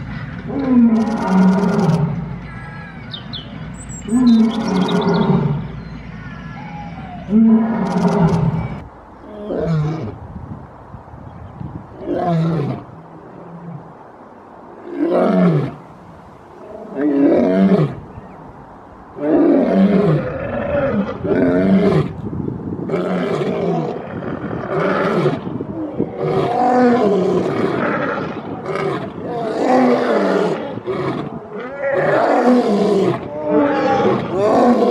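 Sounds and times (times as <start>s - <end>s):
lion roaring: 6.6s - 10.0s, 22.9s - 34.9s.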